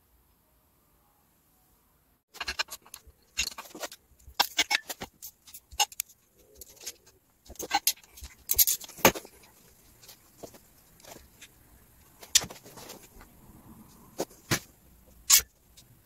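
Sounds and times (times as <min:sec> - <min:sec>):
metal bolts clicking and clinking: 0:02.4 - 0:11.5.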